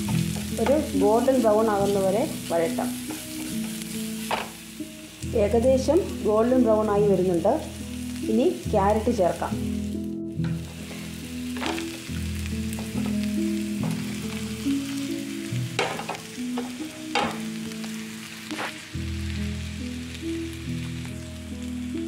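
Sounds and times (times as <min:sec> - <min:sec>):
vegetables sizzling in oil: 0:00.0 - 0:22.0
wooden spatula knocking on pan: 0:03.1 - 0:04.6, 0:15.8 - 0:17.5.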